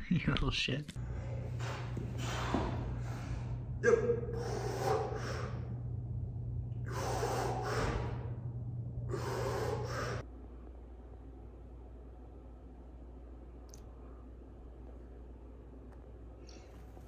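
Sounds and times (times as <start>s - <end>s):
steady low hum: 0.9s - 17.0s
man exhaling hard: 3.9s - 5.7s, 6.8s - 8.4s.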